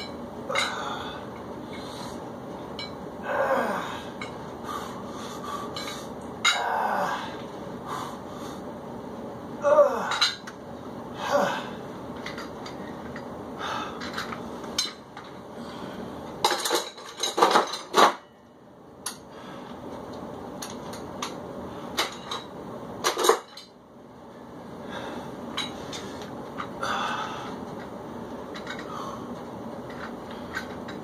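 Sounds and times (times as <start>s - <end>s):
metal dumbbells clanking: 0.0s - 1.0s.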